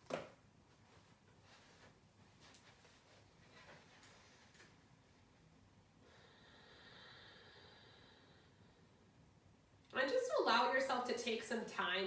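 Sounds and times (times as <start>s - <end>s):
faint breath through nose: 6.0s - 9.0s.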